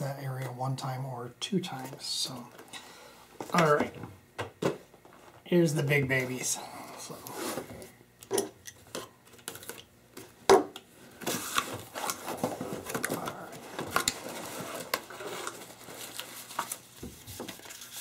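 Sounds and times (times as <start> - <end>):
packaging rustling: 11.1 - 18.0.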